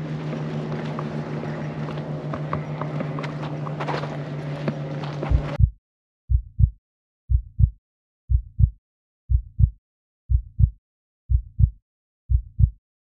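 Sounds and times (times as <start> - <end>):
heartbeat thumps: 5.3 - 12.8.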